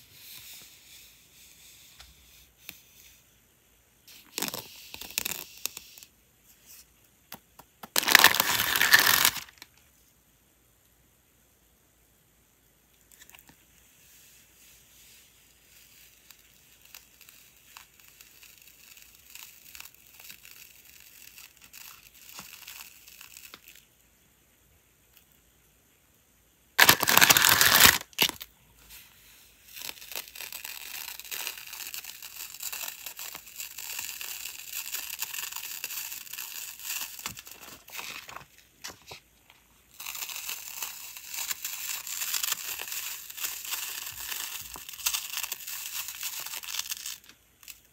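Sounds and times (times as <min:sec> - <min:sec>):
plastic tape crinkling: 0:04.1 - 0:06.1, 0:07.8 - 0:09.8, 0:15.6 - 0:23.9, 0:26.8 - 0:28.5, 0:29.6 - 0:47.9
tape ripping off roll: 0:04.1 - 0:06.1, 0:07.8 - 0:09.8, 0:16.0 - 0:23.8, 0:26.8 - 0:28.5, 0:29.8 - 0:39.2, 0:39.9 - 0:47.9.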